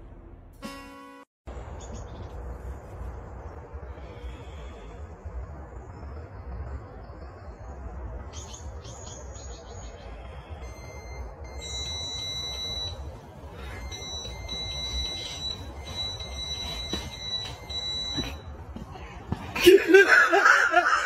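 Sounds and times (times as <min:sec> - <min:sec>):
low rumble: 0:01.5 - 0:19.6
high-pitched alarm beeping: 0:10.4 - 0:18.9.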